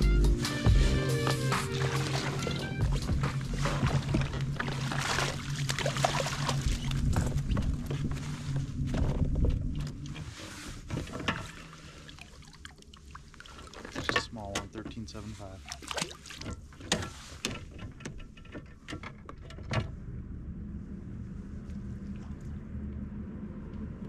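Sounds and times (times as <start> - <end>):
water sloshing: 0.8 - 19.8
steady low hum: 19.8 - 24.0.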